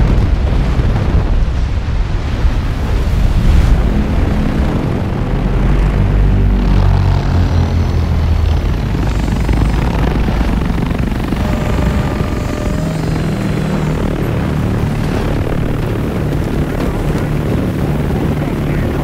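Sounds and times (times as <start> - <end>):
low droning thrum: 3.3 - 19.0
faint higher tones: 7.8 - 16.0.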